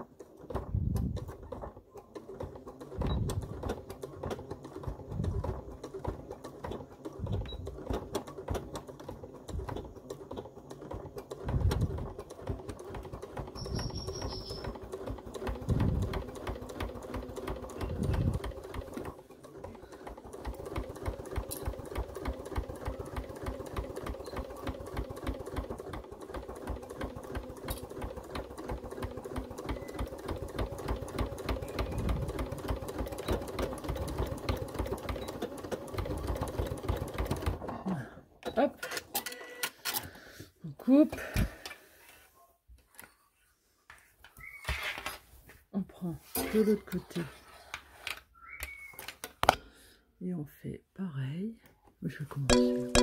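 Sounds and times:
sewing machine stitching: 0:00.0 - 0:40.2
brief high tone: 0:52.5 - 0:53.0.

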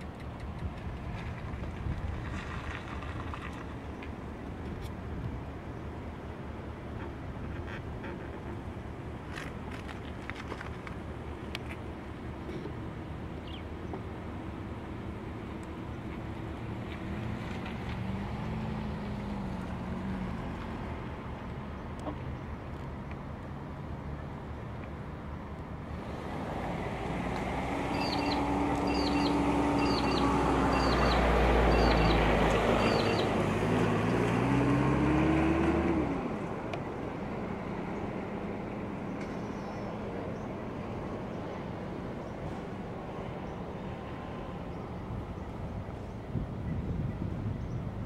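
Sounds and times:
vehicle engine passing by: 0:16.5 - 0:21.3, 0:25.9 - 0:39.6.

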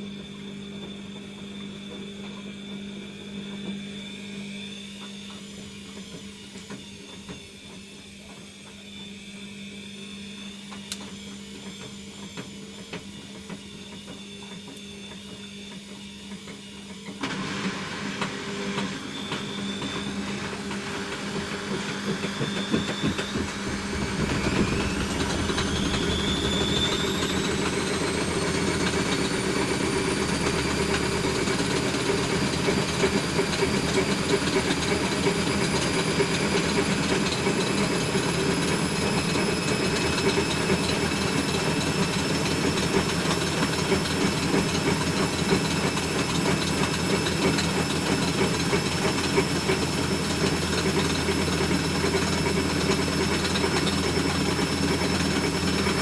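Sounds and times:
washing machine motor whine: 0:00.0 - 0:56.0
drain pump hum: 0:18.2 - 0:56.0.

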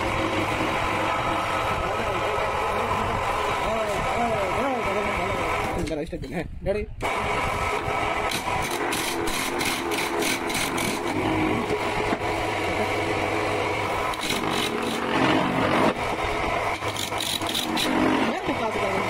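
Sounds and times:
wood lathe running: 0:00.0 - 0:05.8, 0:07.0 - 0:19.0
chisel scraping spinning wood: 0:08.3 - 0:11.8, 0:14.0 - 0:18.7.

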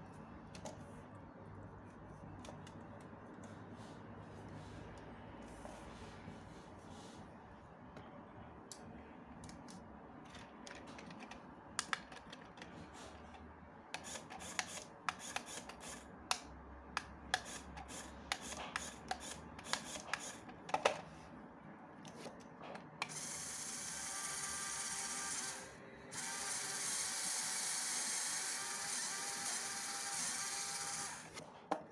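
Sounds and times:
small electric motor whirring: 0:23.1 - 0:31.4.

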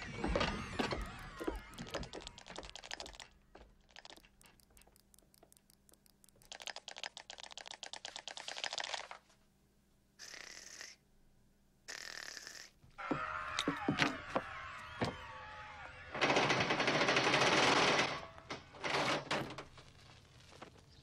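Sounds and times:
scurrying feet clicks: 0:00.0 - 0:08.2
short hissing sounds: 0:10.2 - 0:11.0.

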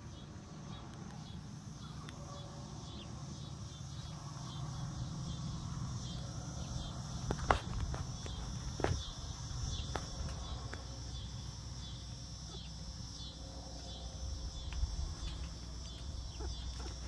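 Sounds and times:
insect chorus chirring: 0:00.0 - 0:17.0
hens calling: 0:15.9 - 0:17.0.

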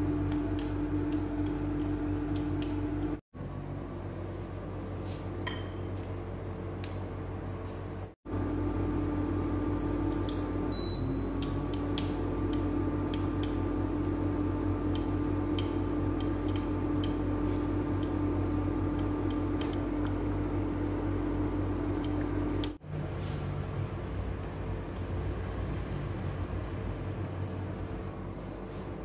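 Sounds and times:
kitchen appliance humming: 0:00.0 - 0:04.7, 0:08.3 - 0:22.8.

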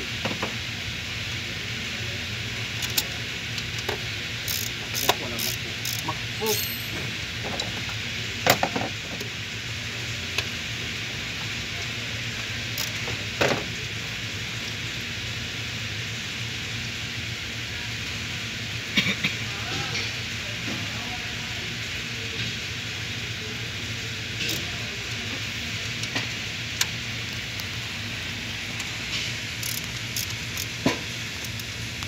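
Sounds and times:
radiator cooling fan rushing: 0:00.0 - 0:32.0
pliers clicking on hose clamps: 0:29.6 - 0:30.7.

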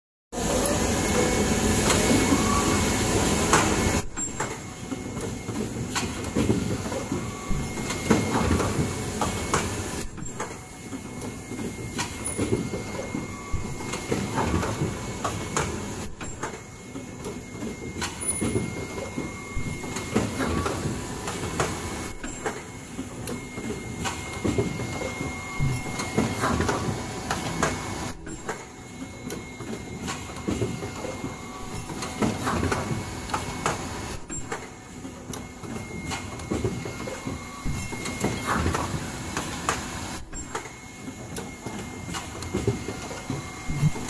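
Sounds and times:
faint machine whine: 0:00.4 - 0:44.0
machine mechanical clatter: 0:01.8 - 0:25.0, 0:25.6 - 0:44.0
machine cycle burst: 0:03.9 - 0:04.6, 0:10.0 - 0:10.6, 0:16.0 - 0:16.6, 0:22.0 - 0:22.7, 0:28.1 - 0:28.7, 0:34.1 - 0:34.7, 0:40.2 - 0:40.7.

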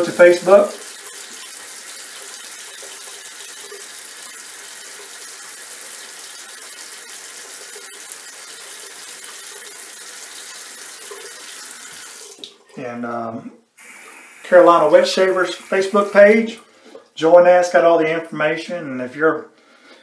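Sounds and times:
tap water running into sink: 0:00.0 - 0:12.7, 0:13.8 - 0:17.1.

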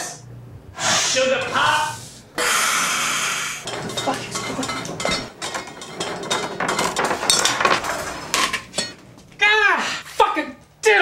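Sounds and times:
utensils and dishes clattering: 0:03.6 - 0:09.4.

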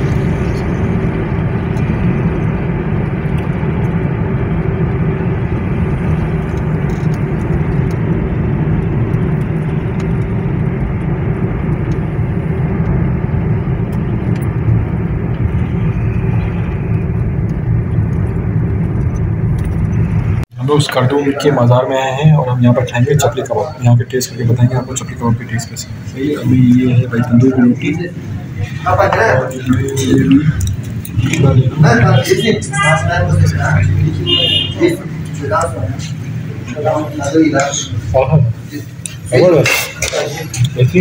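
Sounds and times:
car driving on paved road: 0:00.0 - 0:20.5.

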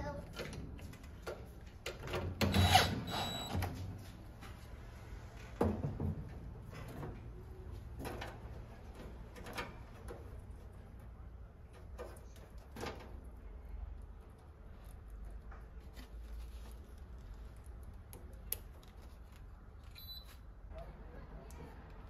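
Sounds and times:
cordless drill running: 0:02.5 - 0:03.4.

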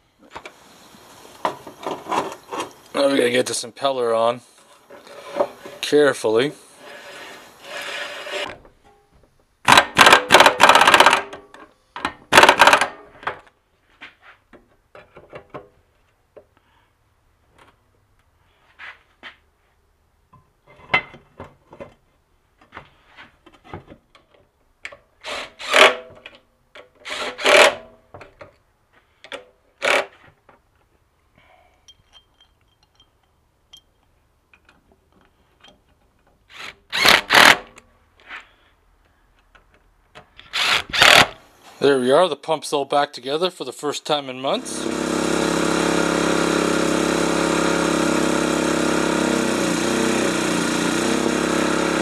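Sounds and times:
impact wrench hammering: 0:09.7 - 0:11.3, 0:12.3 - 0:13.0.

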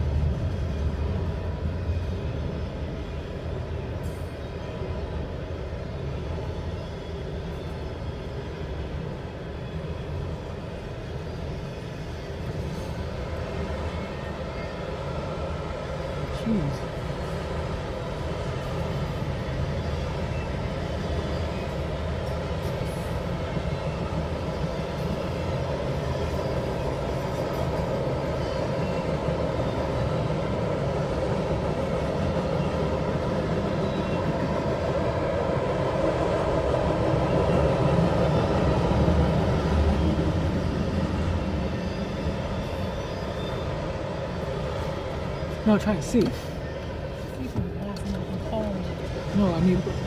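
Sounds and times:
freight train wheels rumbling on rail: 0:00.0 - 0:50.0.

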